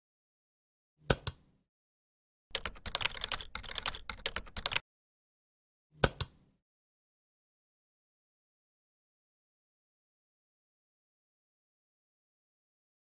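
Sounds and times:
keyboard typing: 0:02.5 - 0:04.8.

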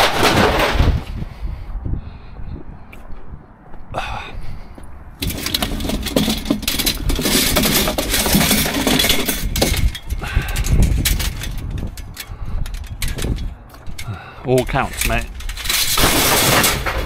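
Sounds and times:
metal wire hoops clinking and rattling: 0:05.2 - 0:17.0.

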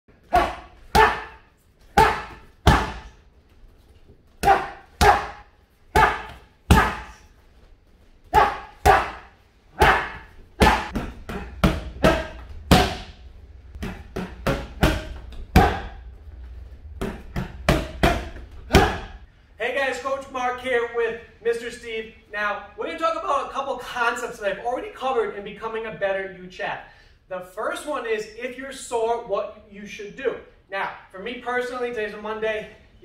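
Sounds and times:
boxing gloves striking mitts: 0:00.3 - 0:03.2, 0:04.4 - 0:07.3, 0:08.3 - 0:16.0, 0:17.0 - 0:19.2.

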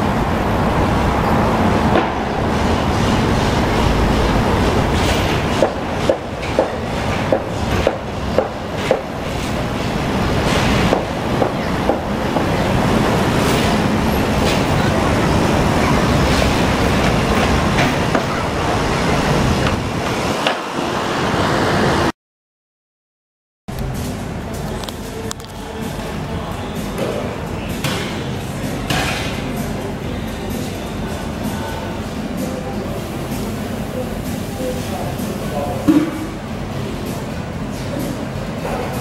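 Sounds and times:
street traffic noise: 0:00.0 - 0:22.1, 0:23.7 - 0:39.0
tram wheels clacking over rail joints: 0:00.6 - 0:21.0.

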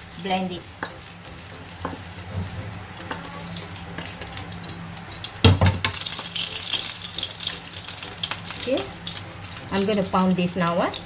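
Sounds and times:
hot fried food hissing: 0:00.0 - 0:11.0
knock on a pan: 0:05.4 - 0:06.0.

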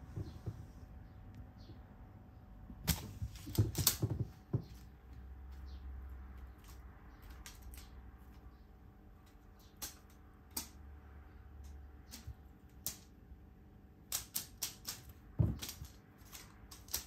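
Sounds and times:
clicks and knocks on wooden floor: 0:00.0 - 0:00.8, 0:02.8 - 0:04.9, 0:15.4 - 0:16.0.

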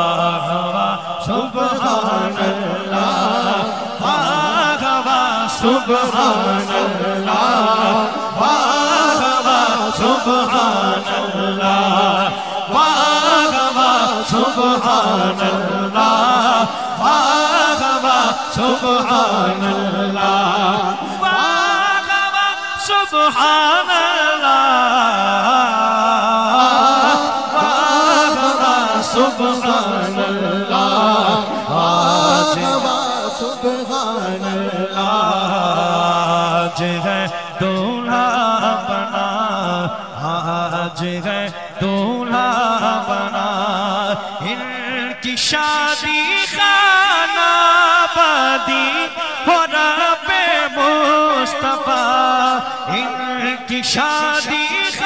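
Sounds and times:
men singing and chanting: 0:00.0 - 0:55.0.

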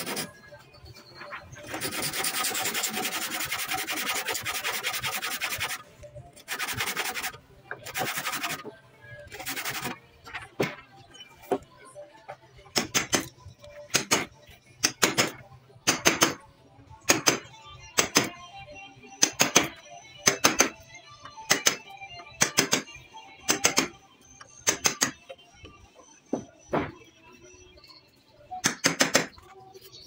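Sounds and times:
hammer striking a wood chisel: 0:28.6 - 0:29.3.

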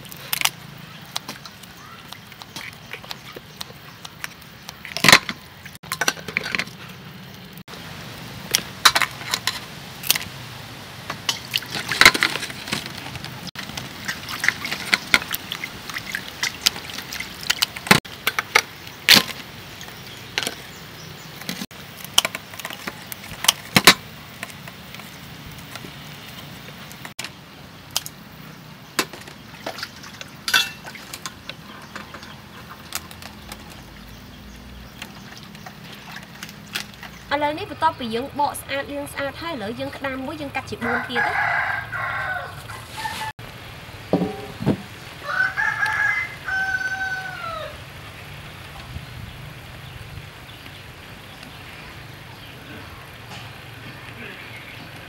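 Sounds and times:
water sloshing: 0:08.4 - 0:27.3, 0:28.9 - 0:38.5
shell clinking against metal bowls: 0:30.5 - 0:30.9.

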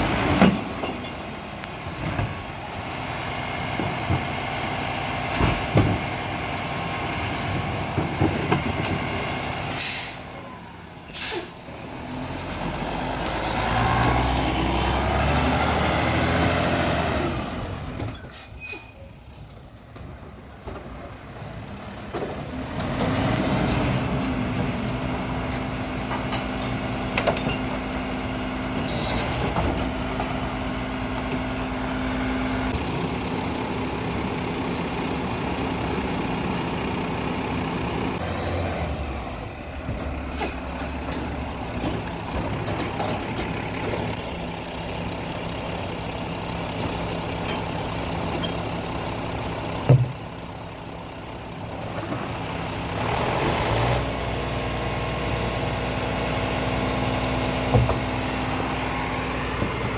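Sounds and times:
diesel truck engine: 0:00.0 - 0:59.9
air-brake hisses: 0:09.7 - 0:10.4, 0:11.1 - 0:11.7.

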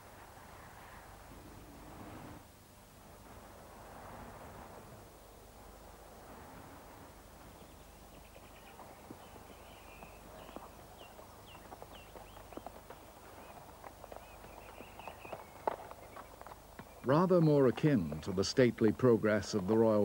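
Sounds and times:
small birds chirping: 0:07.4 - 0:18.4
horse hoofbeats on grass: 0:07.4 - 0:20.0.

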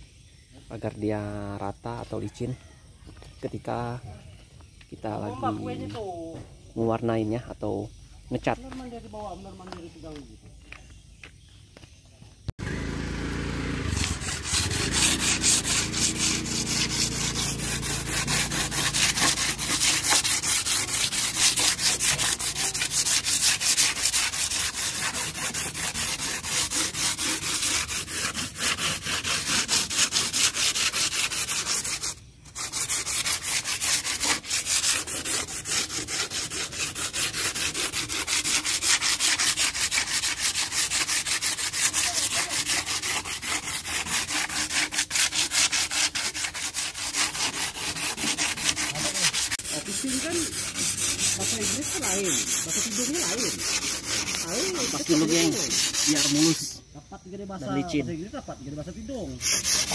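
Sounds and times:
sandpaper rubbing on wood: 0:13.8 - 0:56.8, 0:59.3 - 0:59.9.

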